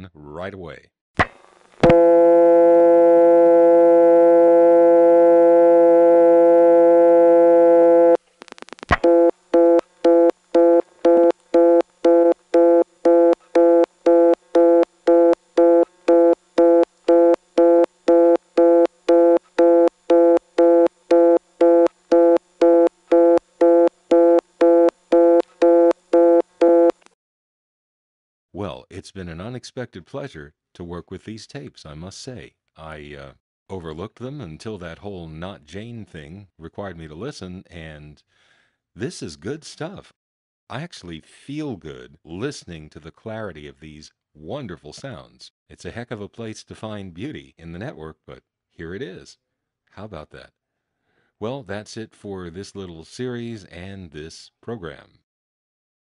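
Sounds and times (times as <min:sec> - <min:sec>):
pulsing reorder tone: 0:01.8 - 0:08.2, 0:08.9 - 0:27.0
telephone dial tone: 0:01.8 - 0:08.2, 0:09.0 - 0:27.0.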